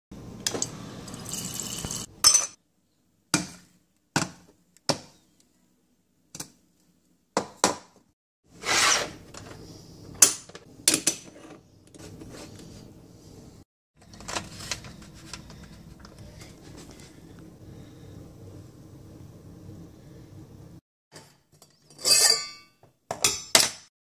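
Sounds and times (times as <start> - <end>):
tap water rushing: 0.4 - 2.1.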